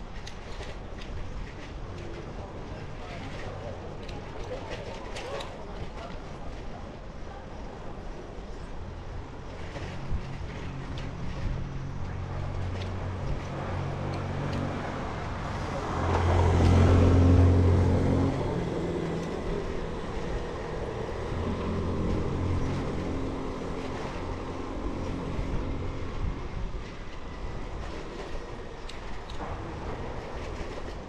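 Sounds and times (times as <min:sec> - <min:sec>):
street traffic: 0:00.0 - 0:31.0
motor scooter passing: 0:15.3 - 0:25.9.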